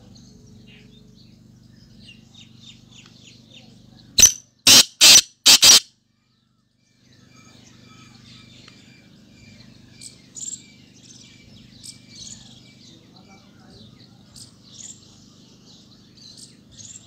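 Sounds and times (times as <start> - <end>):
bird harsh calls: 4.2 - 5.8
faint chirping: 4.2 - 5.8.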